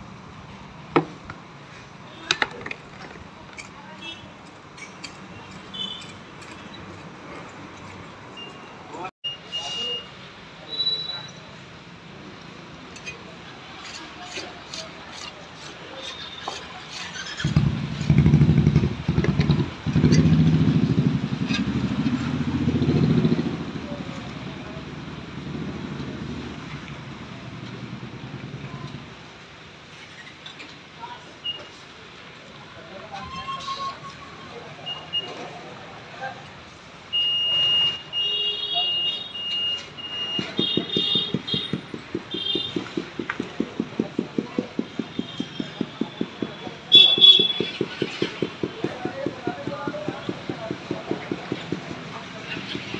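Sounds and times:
motorcycle engine running: 17.5s - 23.6s.

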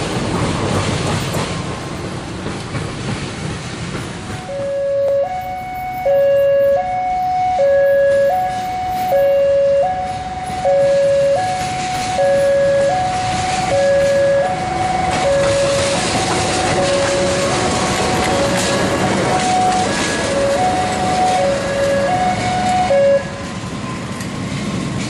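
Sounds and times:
diesel locomotive engine: 0.0s - 25.0s
train wheel noise: 0.0s - 25.0s
two-tone crossing warning signal: 4.2s - 23.6s.

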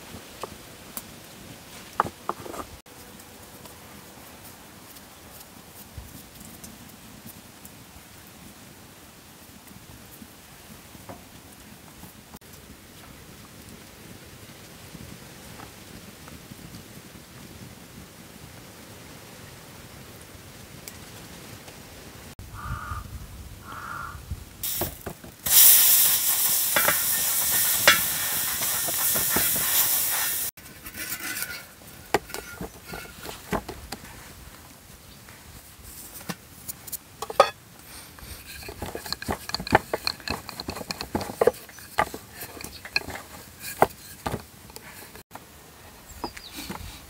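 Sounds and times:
loud hissing rustle: 24.6s - 34.6s
rolling pin rolling dough: 38.3s - 45.2s.

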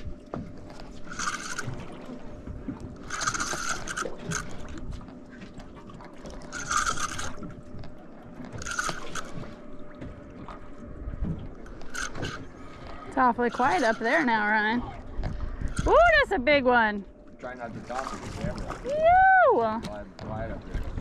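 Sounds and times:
fishing reel buzzing: 0.7s - 5.0s, 6.2s - 9.8s, 11.6s - 14.8s, 15.6s - 16.4s.

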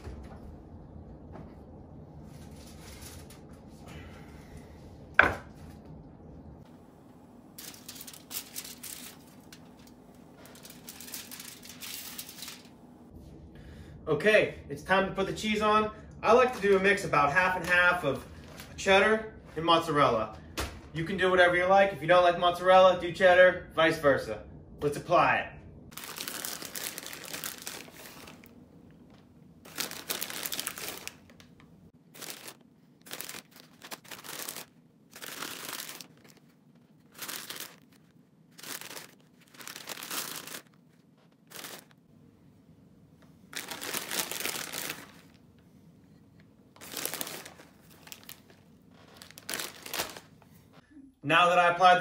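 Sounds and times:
plastic bags crinkling: 7.6s - 12.8s, 25.9s - 42.0s, 43.5s - 45.5s, 46.8s - 50.5s.

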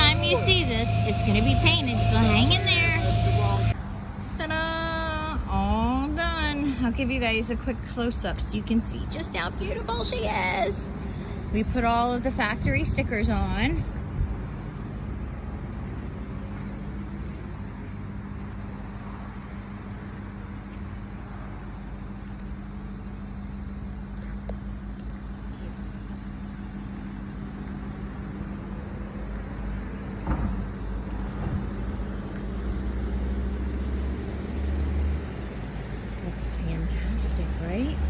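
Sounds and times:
engine idling: 0.0s - 3.8s
low rumble: 0.0s - 4.2s.

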